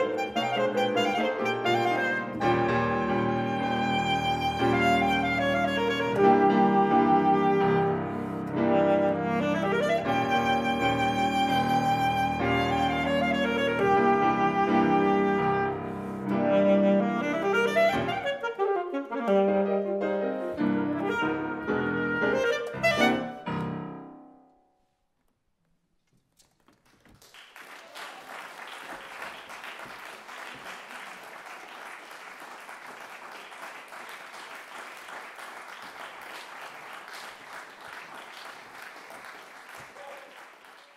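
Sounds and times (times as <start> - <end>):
alto saxophone: 0.0 - 23.8
grand piano: 0.0 - 24.9
audience applause: 26.7 - 40.9.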